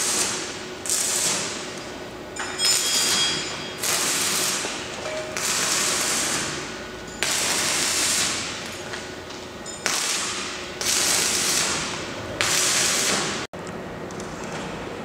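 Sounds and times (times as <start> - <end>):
arc welding crackling hiss: 0.0 - 1.8, 2.7 - 9.0, 9.8 - 13.5.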